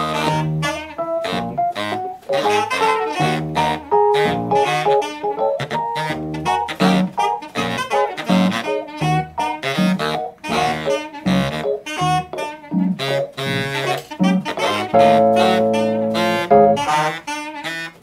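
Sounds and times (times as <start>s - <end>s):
low bass line: 0.0s - 0.7s, 1.3s - 7.2s, 10.5s - 16.9s
electric piano: 0.0s - 17.2s
saxophone melody: 0.0s - 18.0s.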